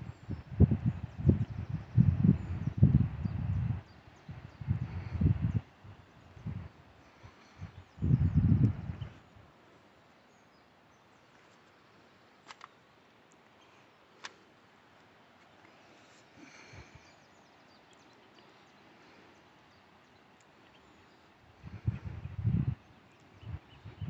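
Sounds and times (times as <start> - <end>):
small clicks: 12.4 - 15.8.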